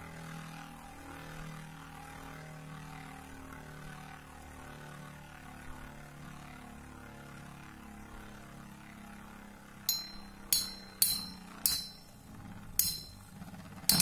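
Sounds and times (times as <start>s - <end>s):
sharp metallic clinks: 9.9s - 14.0s.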